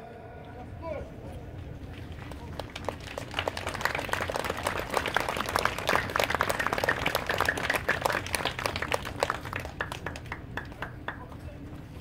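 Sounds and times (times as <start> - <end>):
crowd applauding: 1.9 - 11.4.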